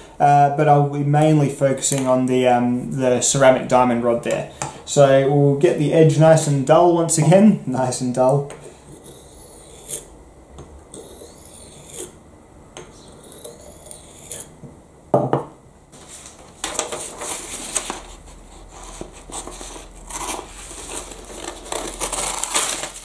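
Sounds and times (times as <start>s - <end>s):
knife scraping on abrasive block: 8.6s - 10.1s, 10.9s - 12.2s, 12.9s - 14.6s
knock: 15.2s - 15.5s
paper rustling and crumpling: 16.0s - 23.0s.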